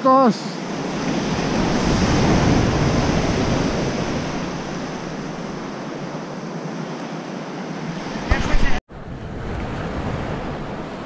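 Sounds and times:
small surf breaking on beach: 0.6 - 5.8.

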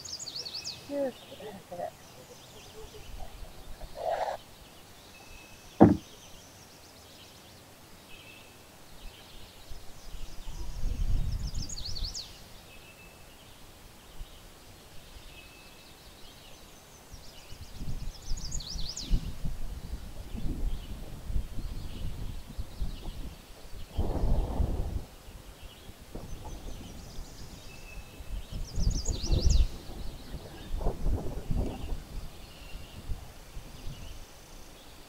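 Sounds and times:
birds singing: 0.0 - 24.6, 25.2 - 35.0
sharp knock: 5.8 - 6.1.

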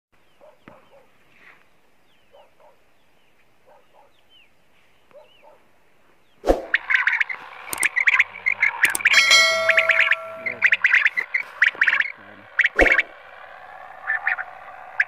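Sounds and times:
thin high chirps: 6.8 - 12.0
faint animal calls: 6.8 - 15.0.

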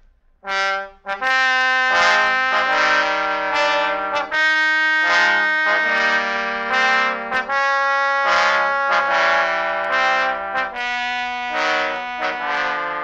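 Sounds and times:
brass playing held chords: 0.4 - 13.0.

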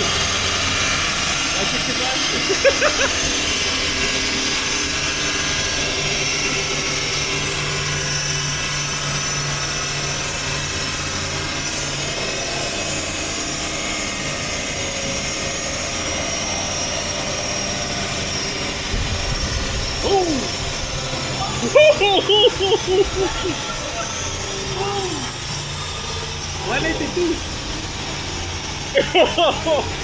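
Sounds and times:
deep rumble: 0.0 - 28.9
machinery drone: 0.0 - 30.0.

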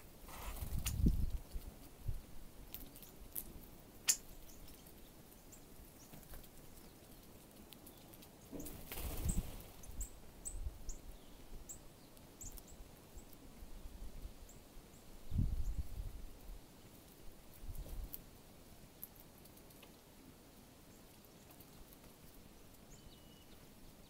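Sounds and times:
bird wing flaps: 0.3 - 1.4, 8.6 - 9.8.

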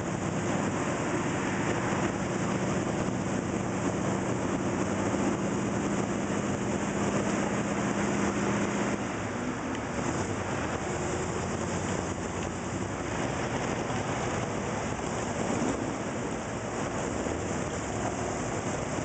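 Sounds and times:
car engines idling: 0.0 - 19.0
low engine hum: 0.0 - 19.0
stop-and-go traffic: 0.0 - 19.0.

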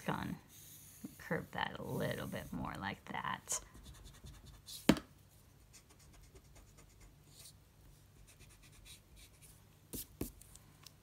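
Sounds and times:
pencil scratching on paper: 0.4 - 2.8, 3.6 - 4.9, 5.7 - 7.6, 8.2 - 10.3.

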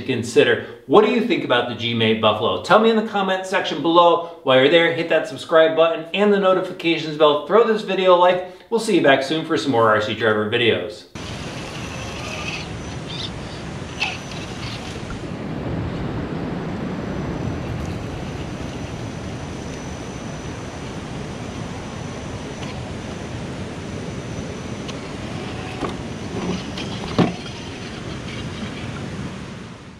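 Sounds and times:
wind rumble on microphone: 11.2 - 29.9.

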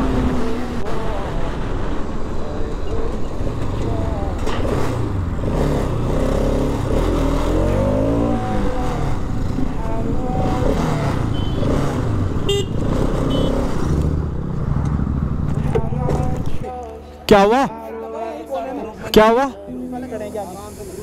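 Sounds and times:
motorcycle engines running: 0.0 - 16.9.

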